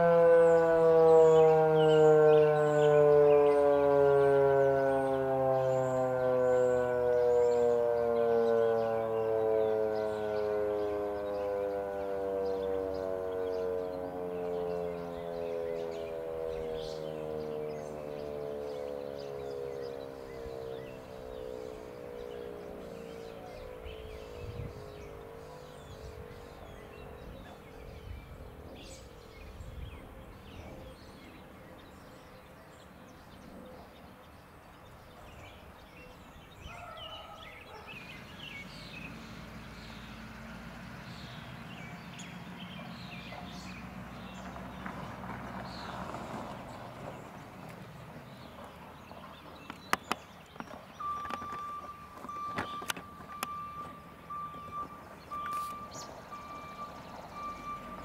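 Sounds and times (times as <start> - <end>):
warning siren winding down: 0.0 - 33.9, 51.0 - 58.0
birds chirping: 0.0 - 58.0
vehicle passing: 0.0 - 58.0
high electronic beep: 51.0 - 58.0.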